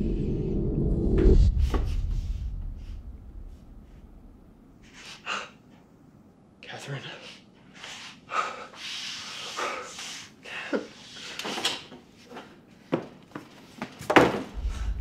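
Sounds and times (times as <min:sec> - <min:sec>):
low rumble: 0:00.0 - 0:04.8, 0:14.6 - 0:15.0.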